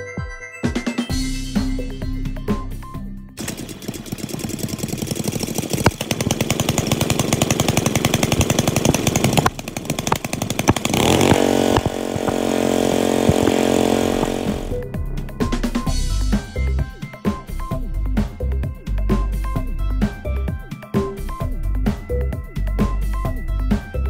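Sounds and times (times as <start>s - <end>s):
pressure washer engine running: 3.4s - 14.8s.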